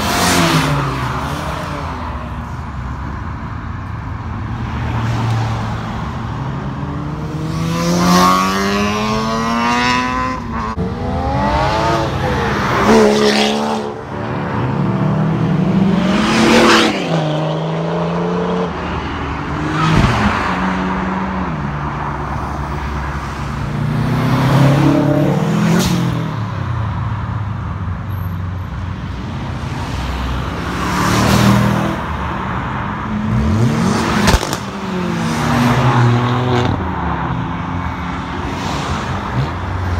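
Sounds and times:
cars accelerating past: 4.7s - 21.6s.

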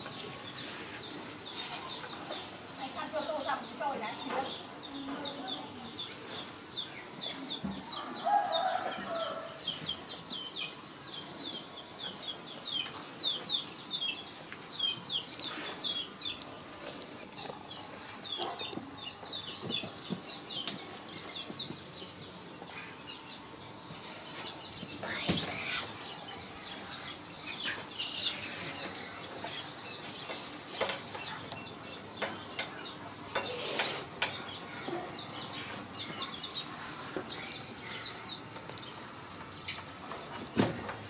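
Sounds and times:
chicks peeping: 0.0s - 41.0s.

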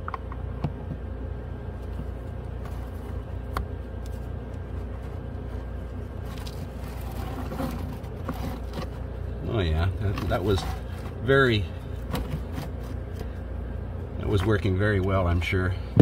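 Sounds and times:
steady low hum: 0.0s - 16.0s
filter scraping and rustling: 1.7s - 13.5s.

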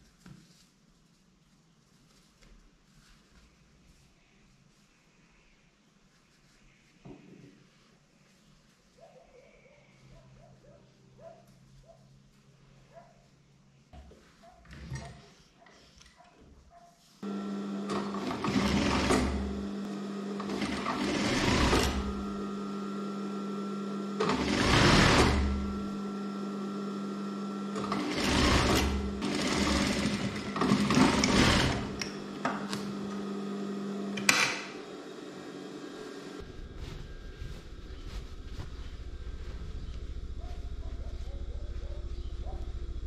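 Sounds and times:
sewing machine stitching: 17.2s - 35.4s
sewing machine motor humming: 17.2s - 36.4s.

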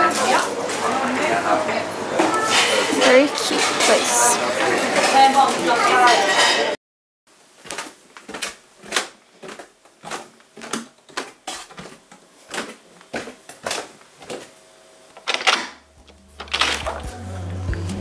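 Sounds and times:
music: 16.2s - 18.0s.

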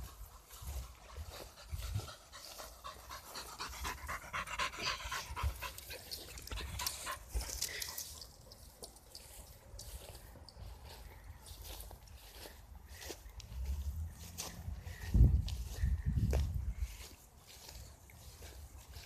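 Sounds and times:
dog panting: 0.0s - 8.8s.

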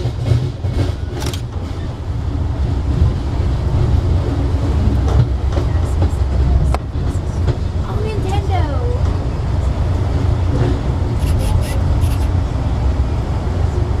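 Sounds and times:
wheels clicking on rail joints: 0.0s - 2.0s, 10.5s - 12.4s
train wheels rumbling on rails: 0.0s - 14.0s.

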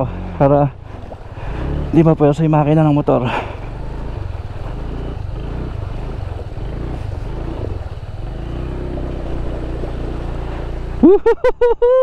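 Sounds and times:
scooter engine running: 0.0s - 11.2s
rushing water and wind: 0.0s - 11.8s.

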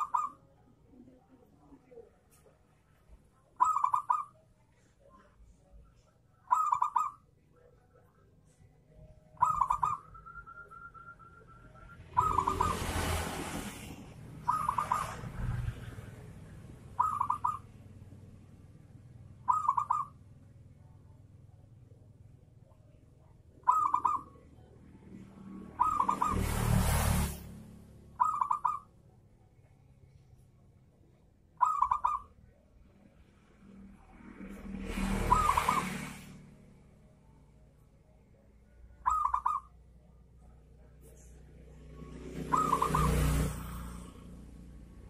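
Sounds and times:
dove cooing song: 0.0s - 2.1s, 3.4s - 5.3s, 6.0s - 8.3s, 8.9s - 13.6s, 14.3s - 17.8s, 19.3s - 20.4s, 22.6s - 24.7s, 25.7s - 26.7s, 28.2s - 29.0s, 31.6s - 32.6s, 35.0s - 36.0s, 38.8s - 40.0s, 42.2s - 44.2s.

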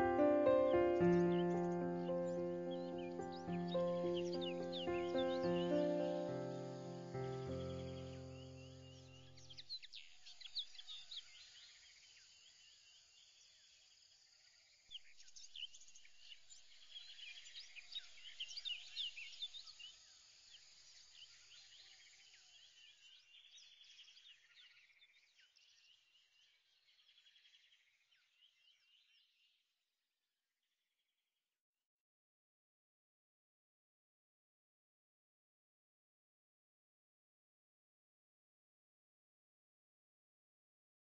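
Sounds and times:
birds chirping and whistling: 0.2s - 9.1s.

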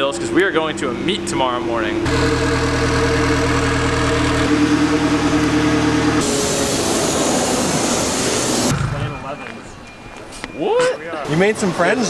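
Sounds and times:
car engine idling: 0.0s - 9.2s
water spray hissing: 6.2s - 8.7s.

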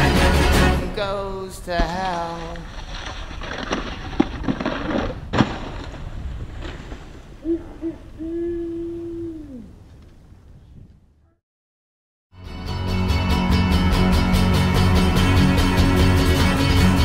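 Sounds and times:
snowboard knocks: 1.8s - 7.4s.

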